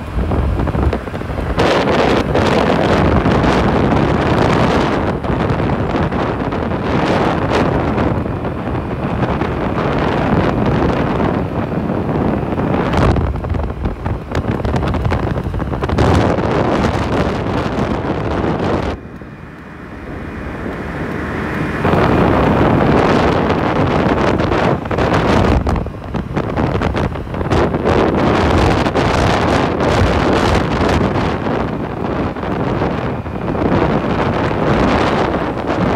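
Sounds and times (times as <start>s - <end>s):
scooter engine running: 0.0s - 35.9s
wind buffeting microphone: 0.0s - 35.9s.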